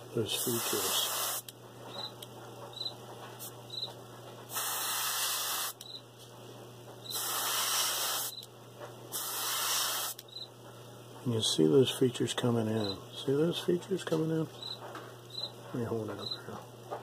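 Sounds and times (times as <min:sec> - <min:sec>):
air compressor hum: 0:00.0 - 0:17.0
airbrush spraying hiss: 0:00.4 - 0:01.5, 0:04.5 - 0:05.8, 0:07.1 - 0:08.5, 0:09.1 - 0:10.2.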